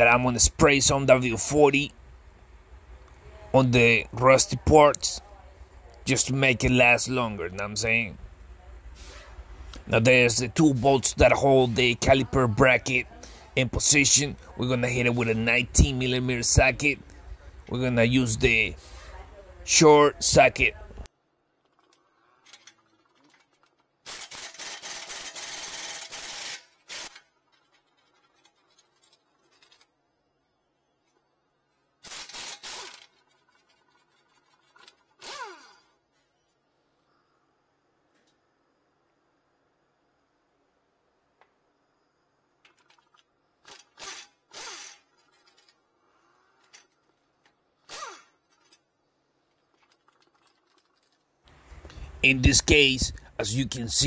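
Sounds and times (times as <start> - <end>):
impact wrench bursts: 24.0 - 27.3, 32.0 - 33.2, 35.1 - 35.9, 43.6 - 45.6, 47.8 - 48.8.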